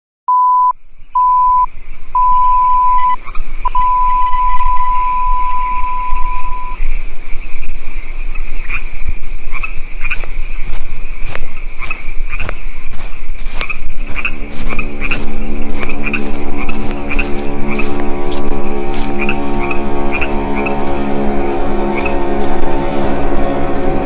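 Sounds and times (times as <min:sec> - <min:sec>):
steady beep: 0:00.3 - 0:06.8
frogs and insects trilling: 0:00.9 - 0:24.0
low buzzing drone: 0:02.2 - 0:06.8, 0:13.3 - 0:24.0
footsteps: 0:09.6 - 0:24.0.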